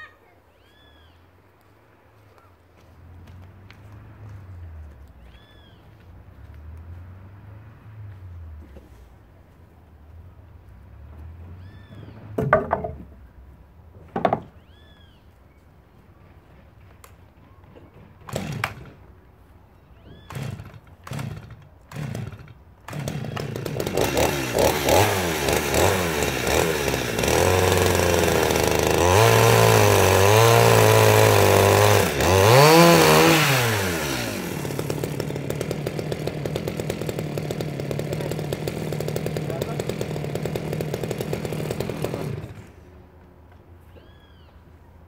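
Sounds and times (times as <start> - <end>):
chainsaw starter cord pulls: 18.2 - 19.0, 20.2 - 42.8
chainsaw engine revving: 18.2 - 19.1, 20.2 - 42.9.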